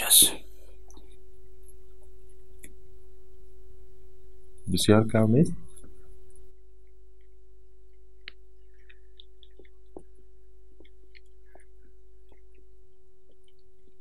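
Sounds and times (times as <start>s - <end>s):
quiet electrical hum: 0.0s - 14.0s
man eating and chewing: 5.6s - 14.0s.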